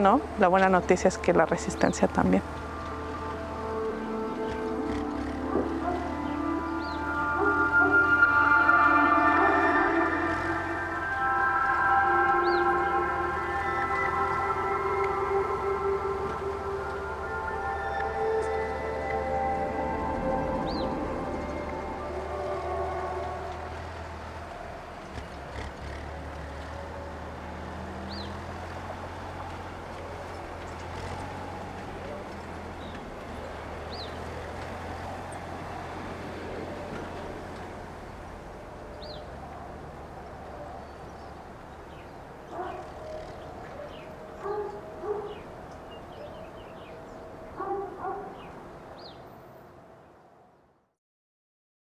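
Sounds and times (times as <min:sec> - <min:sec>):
low rumble: 0:00.0 - 0:25.8
dog barking: 0:05.5 - 0:06.2, 0:07.4 - 0:08.1, 0:42.5 - 0:43.0, 0:43.8 - 0:45.4, 0:47.6 - 0:48.5.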